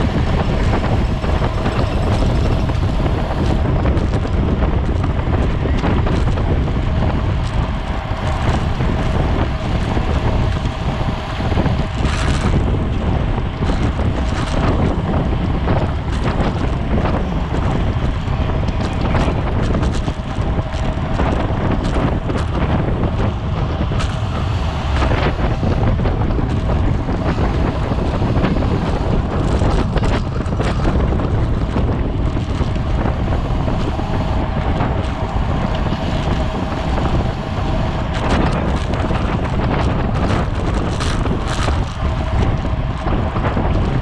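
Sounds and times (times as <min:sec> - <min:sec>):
wind rushing over microphone: 0:00.0 - 0:44.0.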